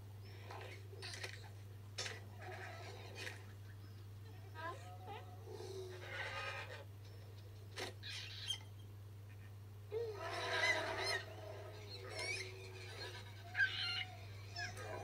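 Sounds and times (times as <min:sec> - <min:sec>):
low electrical hum: 0:00.0 - 0:15.0
cartoon animal calls: 0:09.9 - 0:15.0.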